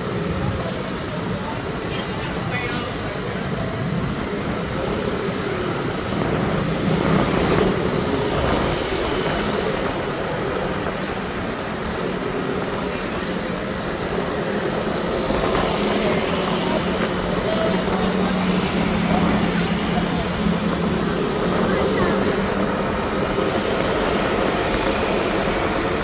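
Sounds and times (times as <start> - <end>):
motor scooter engines running: 0.0 - 26.0
street traffic: 0.0 - 26.0.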